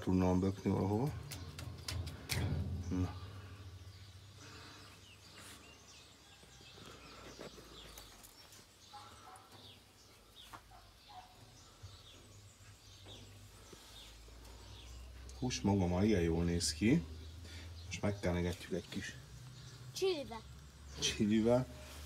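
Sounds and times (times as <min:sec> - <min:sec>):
low steady hum: 0:00.0 - 0:05.6
small birds chirping: 0:00.0 - 0:22.0.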